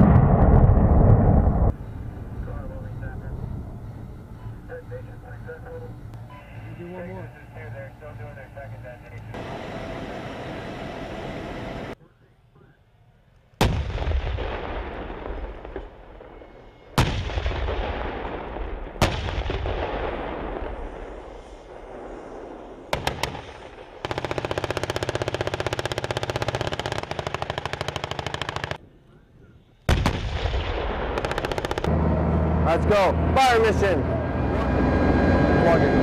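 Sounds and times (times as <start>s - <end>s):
tank gun firing with rolling echo: 13.6s - 29.0s, 29.9s - 32.0s
machine-gun fire: 22.9s - 28.8s, 29.9s - 31.9s.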